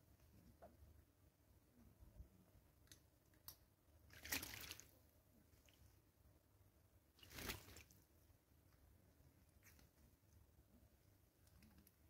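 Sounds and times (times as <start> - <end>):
bird splashing in water: 4.1 - 4.9, 7.2 - 8.0.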